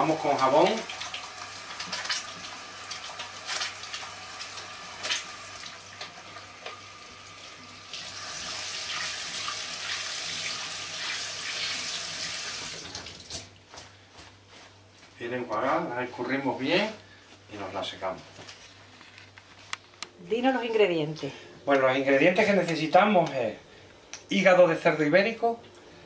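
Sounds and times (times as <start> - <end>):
tap water running into sink: 0.0 - 13.5.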